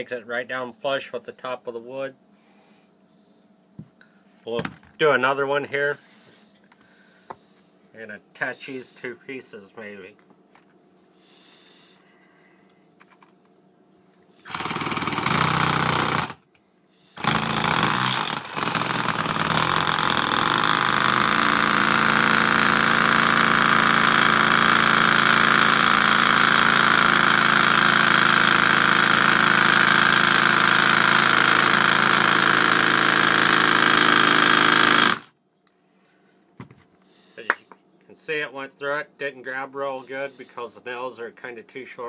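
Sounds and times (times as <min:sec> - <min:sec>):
impact driver hammering a nail: 0:14.5 - 0:16.4, 0:17.2 - 0:35.3.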